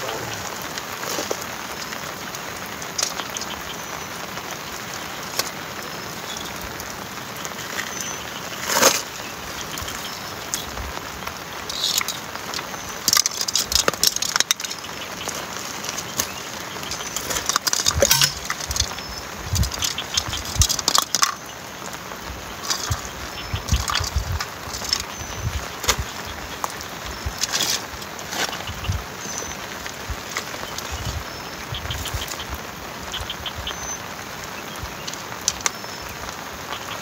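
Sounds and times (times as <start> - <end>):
heavy rain falling: 0.0 - 37.0
fishing gear clicking: 17.0 - 18.9.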